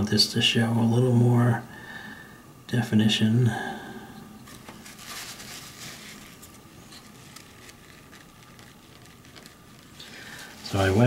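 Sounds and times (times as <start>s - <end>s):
paintbrush rustling on paper: 4.5s - 11.0s.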